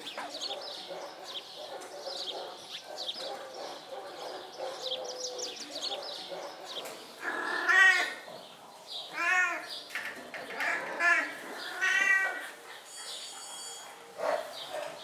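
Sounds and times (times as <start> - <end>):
drawn-out animal cry: 7.2 - 8.2, 10.5 - 13.9.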